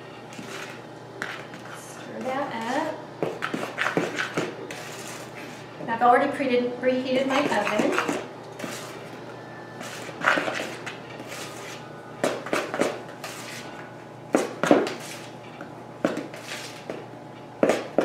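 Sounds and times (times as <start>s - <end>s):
spoon scraping mixing bowl: 0.3s - 5.7s, 7.2s - 9.2s, 9.8s - 11.8s, 12.5s - 13.8s.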